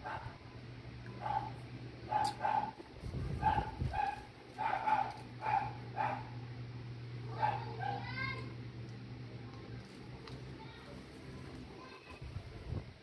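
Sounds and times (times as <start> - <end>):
steady low hum: 0.0 - 13.0
animal yapping: 2.1 - 2.8.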